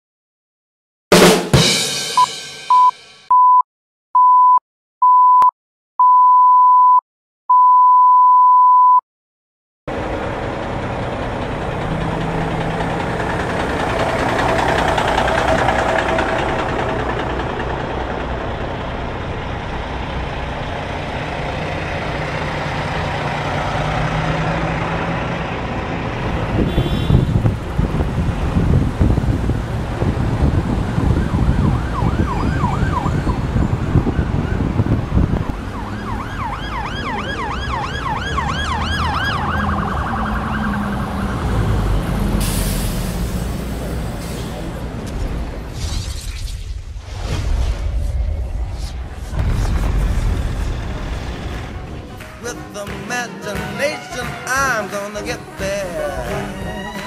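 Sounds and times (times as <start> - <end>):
electronic beeps: 2.2 - 3.6
semi-truck engines rumbling: 9.9 - 46.5, 48.3 - 57.0.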